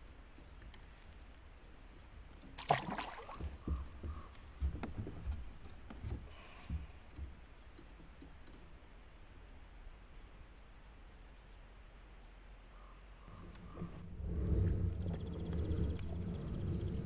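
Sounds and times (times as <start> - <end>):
fish splashing into water: 2.6 - 3.6
soft knocks and clicks on kayak: 3.4 - 8.6.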